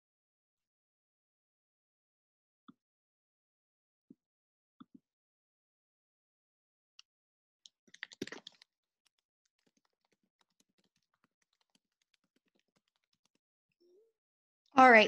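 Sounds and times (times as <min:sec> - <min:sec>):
typing on a keyboard: 0:07.9 - 0:13.4.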